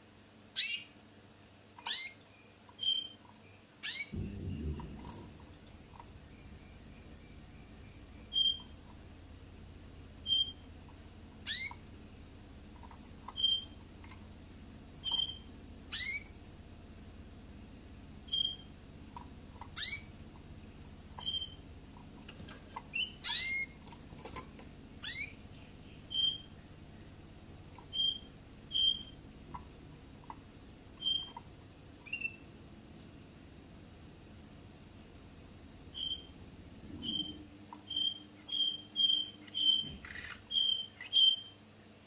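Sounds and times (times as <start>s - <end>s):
faint steady hum: 0.0s - 42.0s
finch calling: 3.8s - 9.1s, 10.1s - 14.3s, 15.0s - 16.5s, 18.3s - 20.3s, 21.1s - 32.5s, 35.9s - 36.3s, 37.0s - 41.6s.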